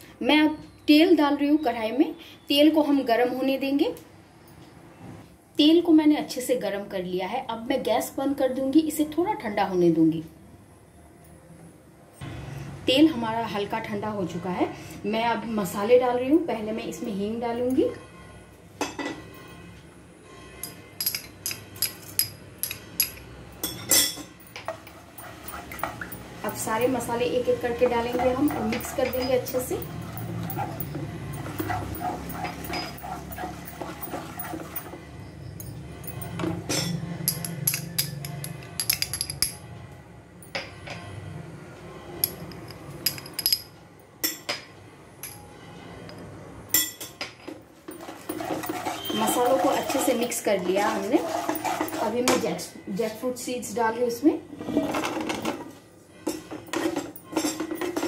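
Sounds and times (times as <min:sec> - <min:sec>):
metal spoon clinking on utensils: 0:20.6 - 0:35.0, 0:35.6 - 0:39.7, 0:42.2 - 0:45.5, 0:46.1 - 0:52.5, 0:56.2 - 0:58.0.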